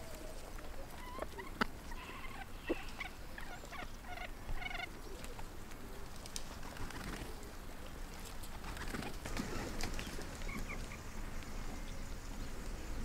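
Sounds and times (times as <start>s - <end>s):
chicken trilled calls: 0.0s - 5.3s
chickens clucking: 0.0s - 6.2s, 6.8s - 13.0s.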